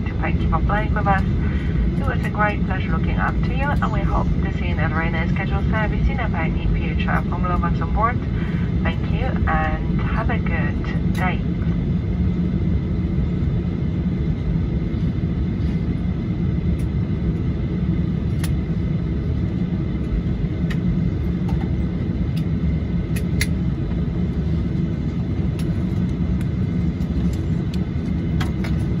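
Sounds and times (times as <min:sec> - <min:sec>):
jet engines idling rumble: 0:00.0 - 0:29.0
thin steady engine whine: 0:00.0 - 0:29.0.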